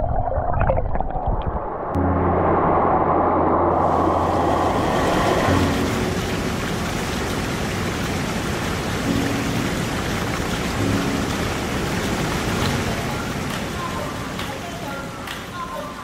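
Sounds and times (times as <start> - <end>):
water rushing over rocks: 3.7 - 16.0.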